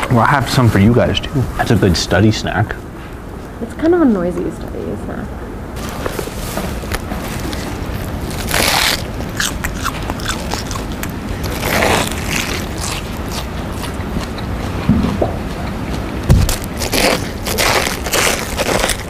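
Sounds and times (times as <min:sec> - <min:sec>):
crunching bites into lettuce: 0:06.8 - 0:14.6, 0:16.2 - 0:19.0.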